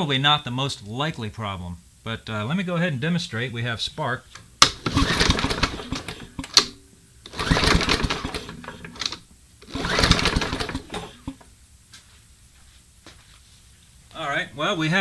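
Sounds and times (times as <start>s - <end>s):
lawn mower recoil starter cranking: 4.6s - 6.7s, 7.3s - 11.3s.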